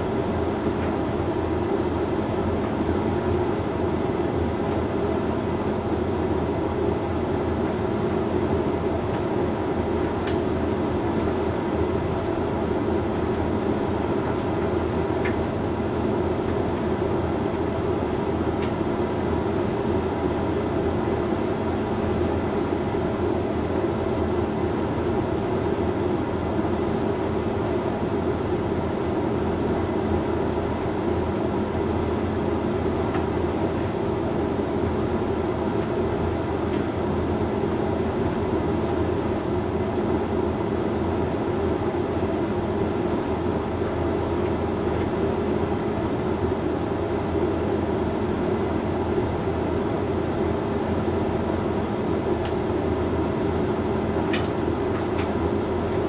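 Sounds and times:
tumble dryer rumbling and humming: 0.0s - 56.0s.

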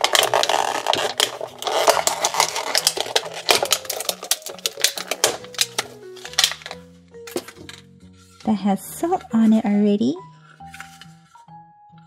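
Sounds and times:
plastic bag crinkling: 0.0s - 7.8s
soft background music: 0.0s - 12.0s.

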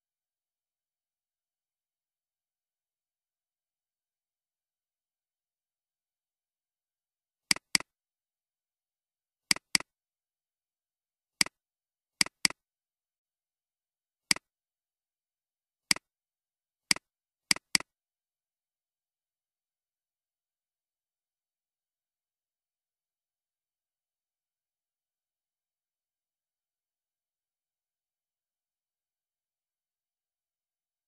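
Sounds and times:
computer mouse clicking: 7.5s - 7.9s, 9.5s - 9.9s, 12.2s - 12.6s, 16.9s - 17.9s.

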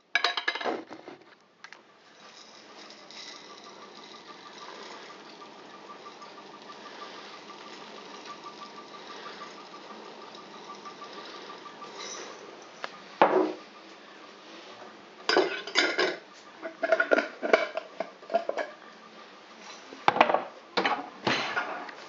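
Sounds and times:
pan and metal utensils clattering: 2.1s - 12.8s, 15.3s - 18.8s.

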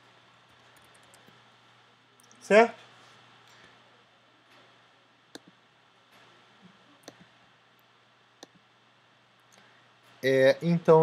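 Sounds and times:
faint room hiss: 0.0s - 11.0s
computer mouse clicking: 0.6s - 1.4s, 5.3s - 5.6s, 7.0s - 7.3s, 8.4s - 8.6s.

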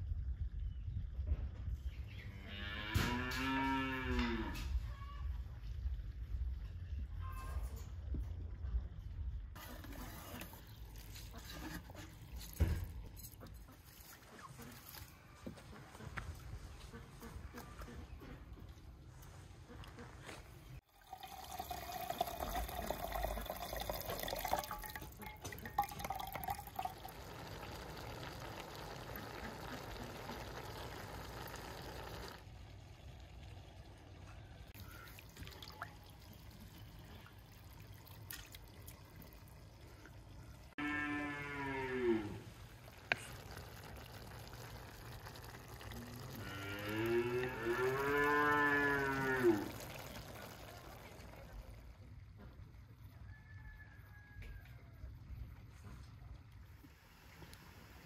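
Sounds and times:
cow mooing: 2.4s - 4.7s, 40.8s - 42.5s, 46.2s - 49.8s
water pouring into basin: 20.8s - 34.0s, 34.7s - 40.4s, 42.5s - 52.1s.

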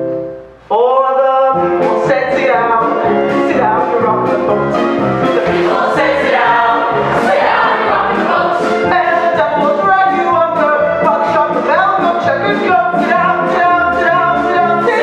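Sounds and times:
musical accompaniment: 0.0s - 15.0s
choir singing a show tune: 5.3s - 9.4s.

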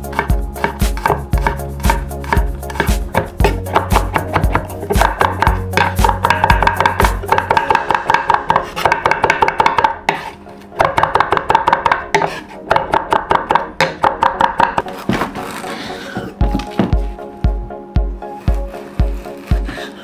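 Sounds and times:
knife chopping on wooden board: 0.0s - 15.3s
background music: 0.0s - 20.0s.

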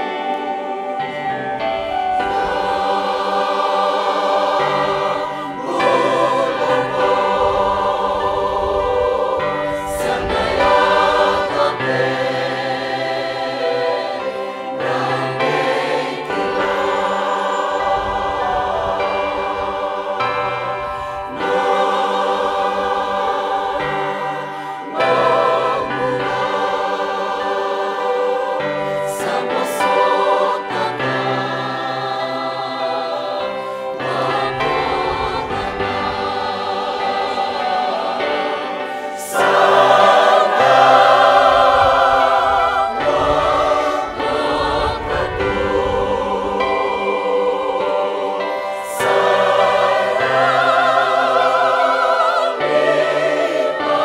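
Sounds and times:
choir singing a hymn in harmony: 0.0s - 54.0s.

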